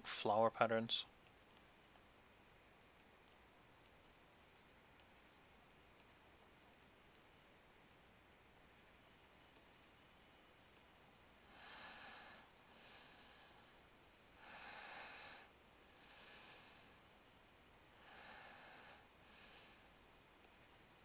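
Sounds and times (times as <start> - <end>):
man breathing through nose: 11.4 - 13.8, 14.4 - 17.0, 18.0 - 19.9.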